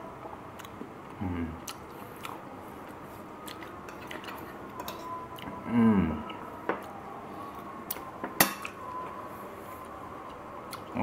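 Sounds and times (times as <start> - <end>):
person humming low: 1.2 - 1.6, 5.5 - 6.4.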